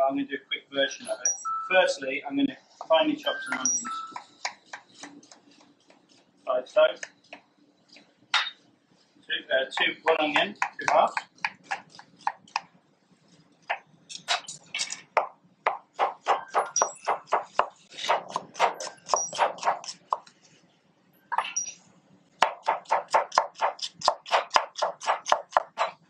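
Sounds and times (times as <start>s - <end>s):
knife chopping onion on board: 10.3s - 12.6s, 15.2s - 20.3s, 22.4s - 26.0s.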